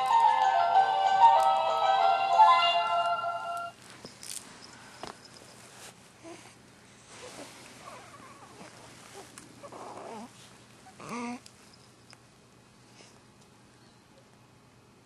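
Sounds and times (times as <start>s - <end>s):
short tune: 0.0s - 3.8s
infant cooing: 9.6s - 10.3s, 11.0s - 11.4s.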